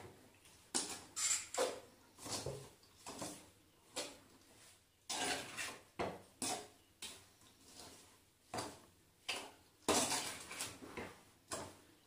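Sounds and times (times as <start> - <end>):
steel spoon scraping a metal pan: 5.1 - 5.8.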